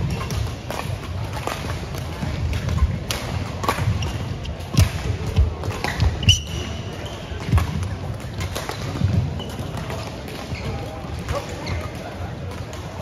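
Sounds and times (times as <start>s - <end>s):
racket hitting shuttlecock: 0.0s - 10.6s
shoe squeak: 3.9s - 4.6s, 5.9s - 7.4s, 10.5s - 10.8s, 11.5s - 12.1s.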